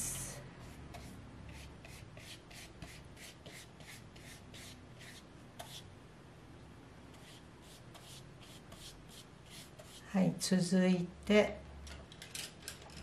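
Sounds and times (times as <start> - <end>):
brush swishing on wet paper: 7.2 - 10.1.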